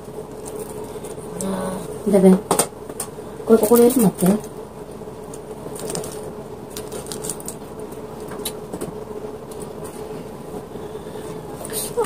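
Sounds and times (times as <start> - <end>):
faint steady hum: 0.0 - 12.0
plastic parts clicking and rustling: 6.8 - 7.6.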